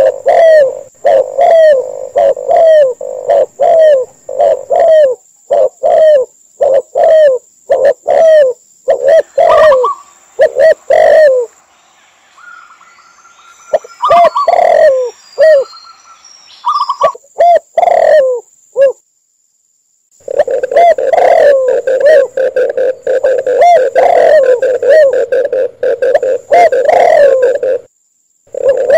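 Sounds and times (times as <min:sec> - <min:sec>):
doves cooing: 0:00.0 - 0:11.5, 0:13.7 - 0:15.7, 0:16.7 - 0:19.0, 0:20.2 - 0:27.9, 0:28.5 - 0:28.9
higher cooing notes: 0:00.0 - 0:11.6, 0:13.5 - 0:15.7, 0:20.2 - 0:27.9, 0:28.5 - 0:28.9.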